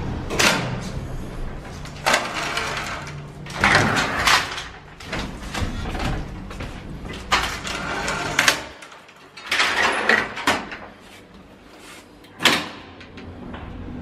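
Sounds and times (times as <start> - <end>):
elevator doors rattling and clattering: 0.0 - 10.9.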